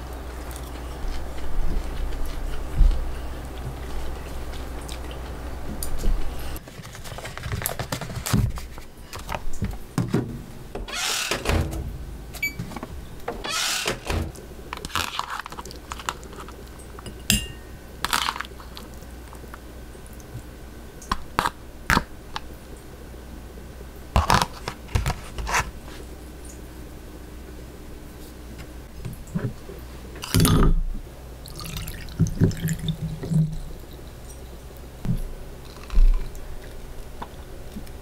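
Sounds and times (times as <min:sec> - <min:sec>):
steady low hum: 0:00.0 - 0:38.0
dishes and utensils clattering: 0:17.0 - 0:17.7.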